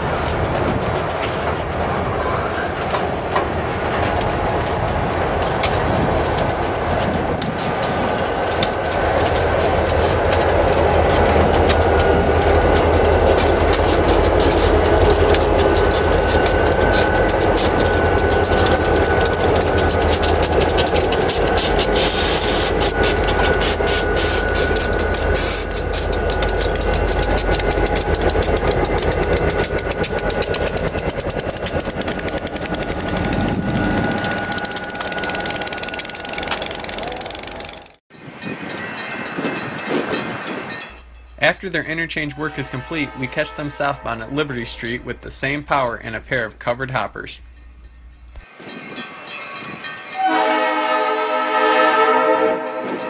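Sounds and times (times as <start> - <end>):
wheels clicking over rails: 0.0 - 38.0
diesel locomotive engines rumbling: 0.0 - 53.0
street sound: 0.0 - 53.0.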